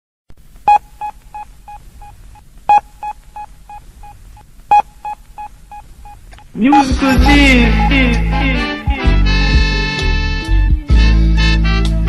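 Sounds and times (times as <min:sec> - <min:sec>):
electronic beep with echoes: 0:06.7 - 0:09.2.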